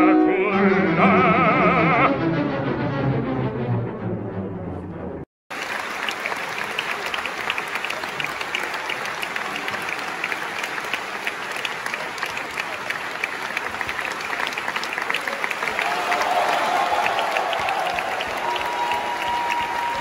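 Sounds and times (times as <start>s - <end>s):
opera music with orchestra: 0.0s - 3.6s
audience applauding: 5.5s - 20.0s.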